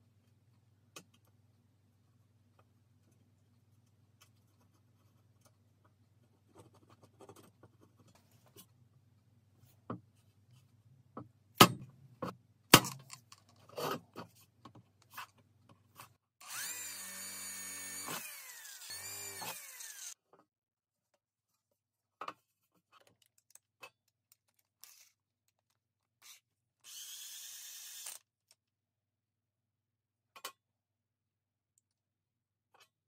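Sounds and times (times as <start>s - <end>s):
power drill drilling: 16.4s - 20.2s, 26.8s - 28.2s.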